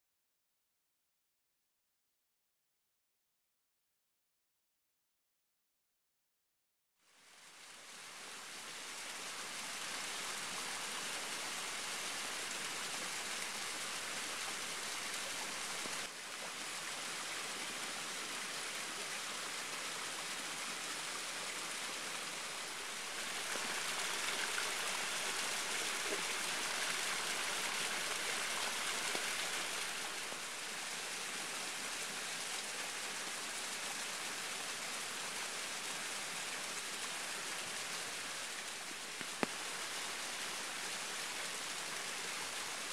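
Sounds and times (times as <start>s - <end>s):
waterfall rushing and splashing: 8.0s - 42.9s.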